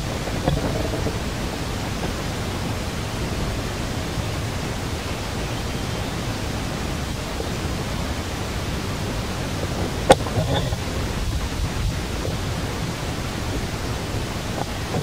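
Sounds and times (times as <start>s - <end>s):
low rumble: 0.0s - 4.0s
steady hiss: 0.0s - 15.0s.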